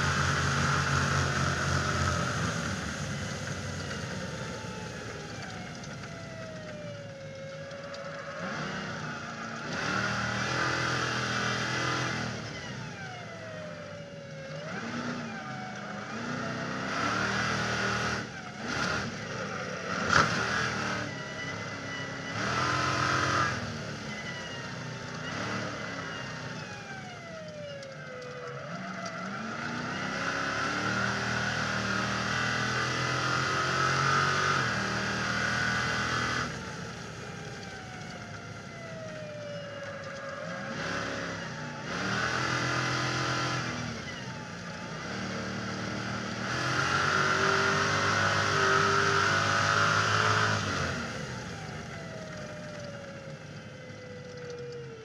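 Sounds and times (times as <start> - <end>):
truck engine racing: 0.0 - 55.0.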